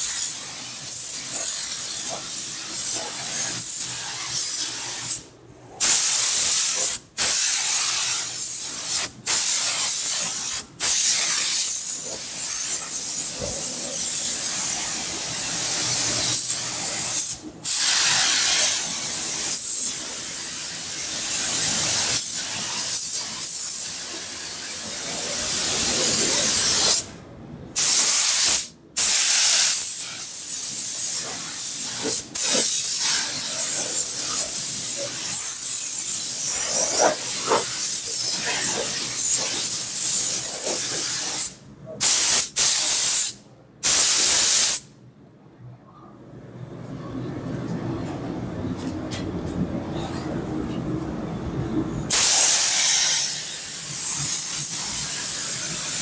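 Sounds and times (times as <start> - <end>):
paint spray gun hissing: 27.8 - 44.8, 52.1 - 56.0.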